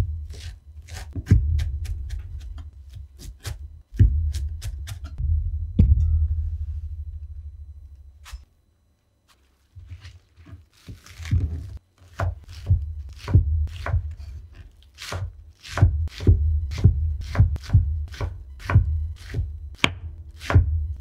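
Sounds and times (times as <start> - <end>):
knife chopping on wooden board: 0.3 - 5.2, 10.8 - 20.8.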